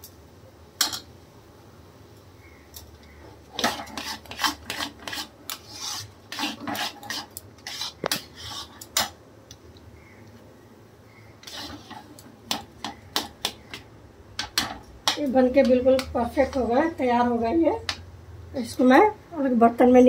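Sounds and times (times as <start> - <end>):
metal spatula scraping pan: 3.5 - 9.1, 11.4 - 13.6.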